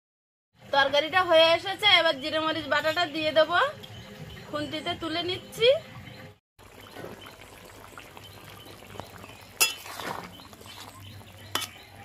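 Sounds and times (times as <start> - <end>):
metal spatula scraping a pan: 9.6 - 11.9.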